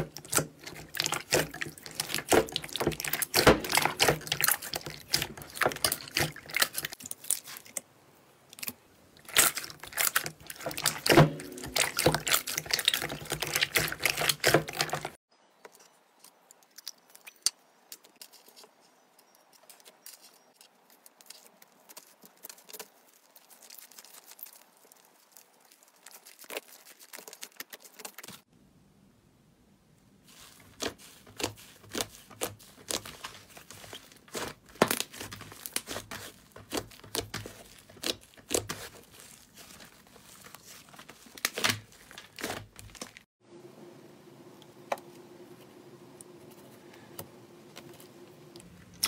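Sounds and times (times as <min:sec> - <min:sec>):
slime squelching and popping: 0:00.0 - 0:07.8, 0:08.5 - 0:15.2, 0:30.3 - 0:43.3.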